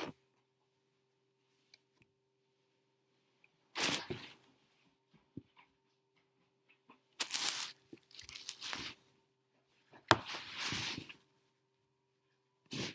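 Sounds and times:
book pages rustling: 0:07.2 - 0:09.0, 0:10.2 - 0:11.2.

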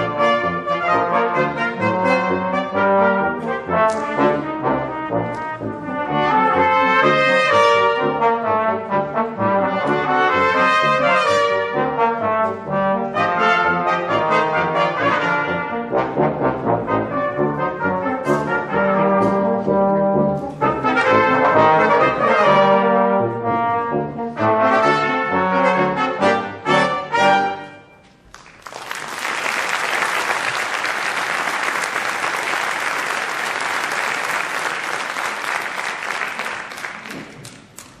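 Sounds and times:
brass quintet playing: 0:00.0 - 0:28.0
audience applause: 0:28.3 - 0:37.9.

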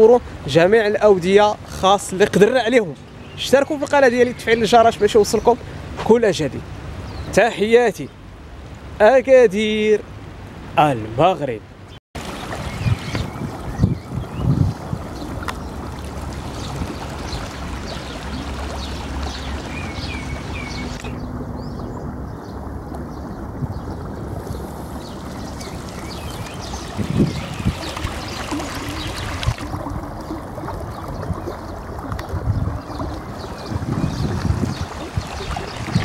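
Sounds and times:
floodwater rushing in a channel: 0:12.2 - 0:36.0.

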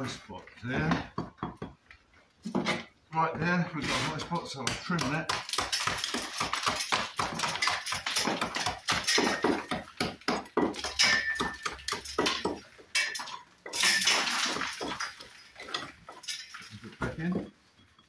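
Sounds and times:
brick bits scraping and falling: 0:03.8 - 0:17.6
brick hammer chipping brick: 0:04.0 - 0:15.9.

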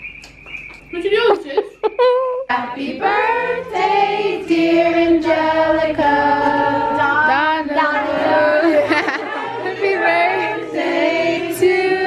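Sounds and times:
group of voices singing in harmony: 0:02.5 - 0:12.0.

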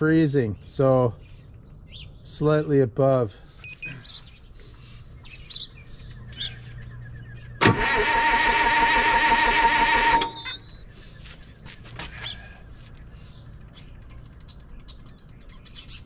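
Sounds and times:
faint birds chirping: 0:00.0 - 0:07.6, 0:10.4 - 0:16.0
diesel engine starter cranking: 0:07.6 - 0:10.8.

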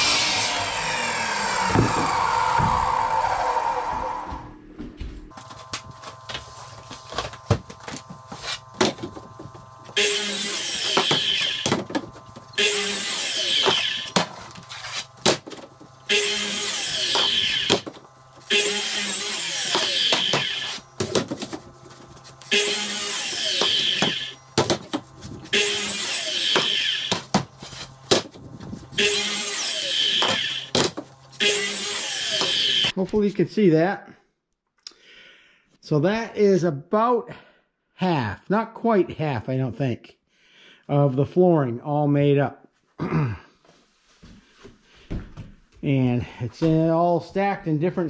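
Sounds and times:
miter saw cutting wood: 0:00.0 - 0:04.5, 0:05.4 - 0:33.0.

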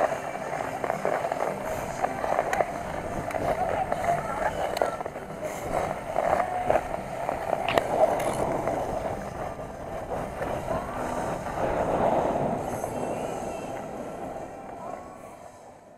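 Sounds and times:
ice skates scraping on ice: 0:00.0 - 0:15.4.

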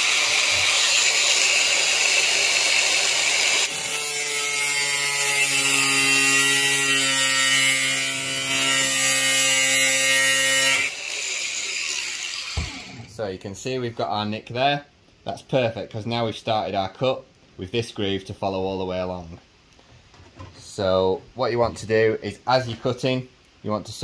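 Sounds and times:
grinder cutting sheet steel: 0:00.0 - 0:13.1.

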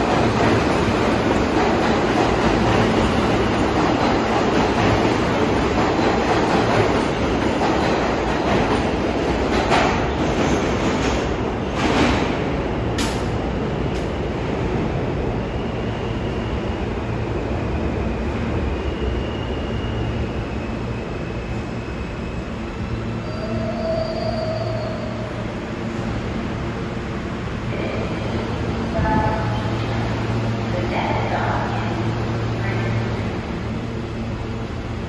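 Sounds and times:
train wheel clacks: 0:00.0 - 0:12.3
subway train rumble: 0:00.0 - 0:35.0
faint high wheel squeal: 0:18.8 - 0:25.4.

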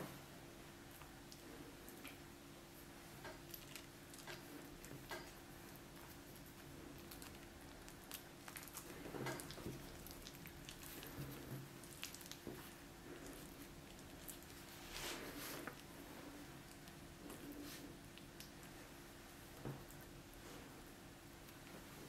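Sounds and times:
dough being handled: 0:01.6 - 0:22.0.

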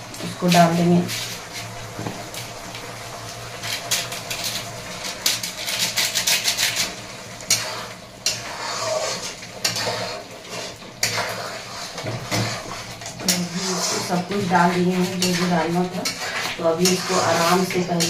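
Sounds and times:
metal spoon scraping metal pan: 0:05.2 - 0:18.0.

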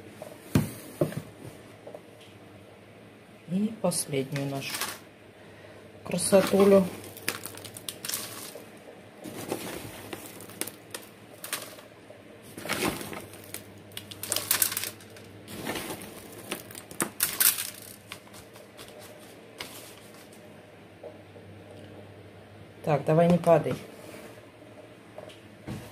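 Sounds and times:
potting mix rustling and crackling: 0:03.6 - 0:05.2, 0:06.0 - 0:20.6.

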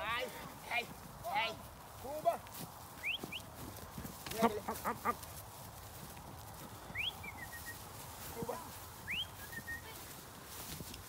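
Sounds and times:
rising whistled calls: 0:03.0 - 0:03.5, 0:06.9 - 0:08.0, 0:09.0 - 0:10.0.

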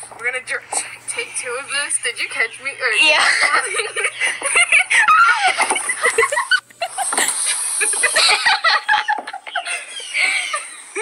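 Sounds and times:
people laughing and squealing: 0:03.2 - 0:11.0.

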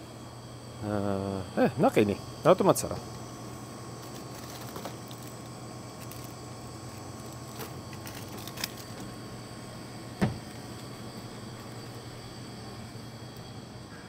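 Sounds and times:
refrigeration units humming: 0:00.0 - 0:14.0
short knock: 0:10.2 - 0:10.4.

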